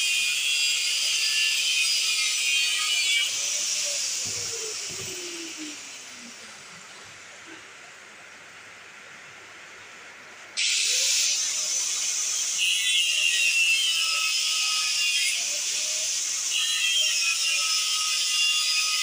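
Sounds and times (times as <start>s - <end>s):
angle grinder cutting metal: 0.0s - 6.3s, 10.6s - 19.0s.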